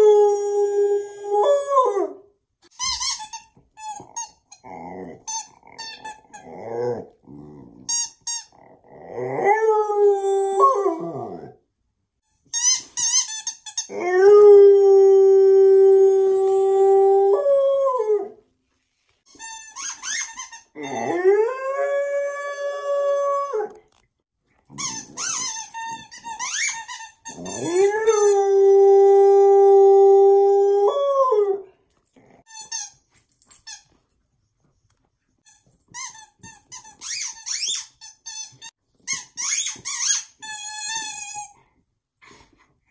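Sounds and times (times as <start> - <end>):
squeaky toy squealing: 2.7 - 6.6, 12.5 - 14.1, 19.3 - 21.2, 24.7 - 28.3, 32.5 - 33.0, 35.5 - 41.6
dog squealing: 24.7 - 28.3.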